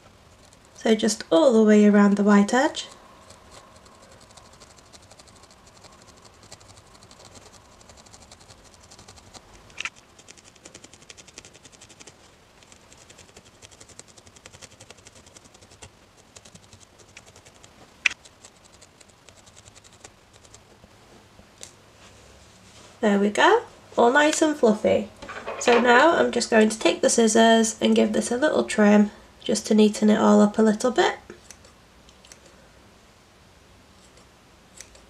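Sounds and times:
felting needle ticking: 2.8 - 20.6.

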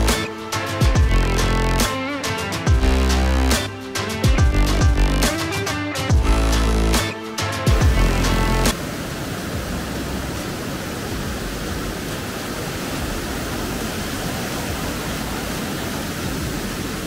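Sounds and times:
churning stream: 0.0 - 17.0
waterfall rushing: 0.0 - 17.0.

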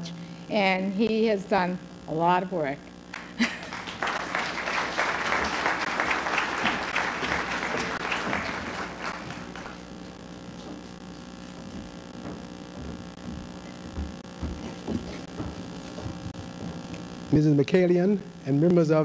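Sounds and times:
steady low hum: 0.0 - 19.0
audience applauding: 3.1 - 9.8.

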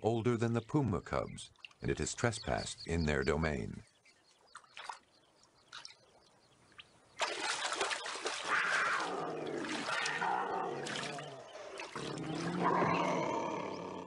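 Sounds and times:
faint splashes and drips: 1.5 - 1.9, 4.2 - 12.9
loud rush of splashing: 7.2 - 12.5
cougar snarling and growling: 8.5 - 14.0.

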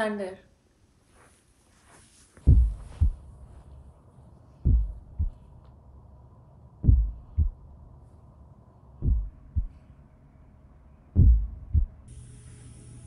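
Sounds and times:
heartbeat thumps: 2.4 - 3.3, 4.6 - 5.5, 6.8 - 7.7, 9.0 - 9.8, 11.2 - 12.1
faint hum: 2.4 - 13.0.

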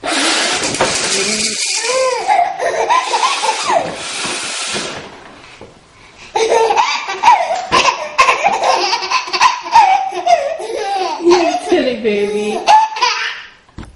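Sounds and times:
woman blowing her nose: 0.0 - 2.3, 3.0 - 5.0
baby laughing: 1.2 - 4.0, 6.3 - 13.6.

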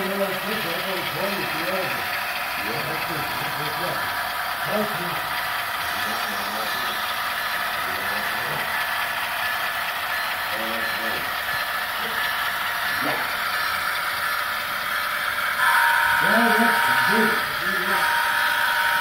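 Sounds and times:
model train mechanical whir: 0.0 - 19.0.

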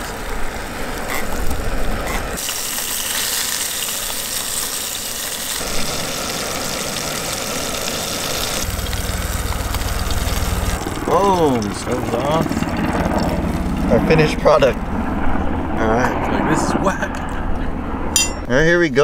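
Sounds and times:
fish sizzling in a pan: 2.3 - 10.9
low rumble: 8.6 - 18.7.

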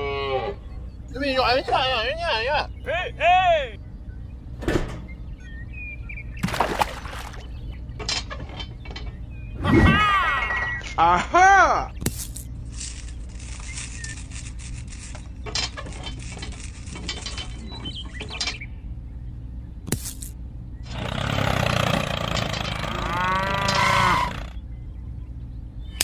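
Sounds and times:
steady low hum: 0.0 - 26.0
cow mooing: 21.1 - 24.6.

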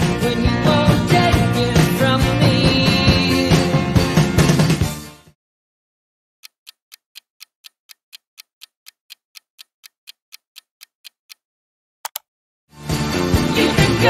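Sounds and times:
clock ticking: 6.4 - 11.5.

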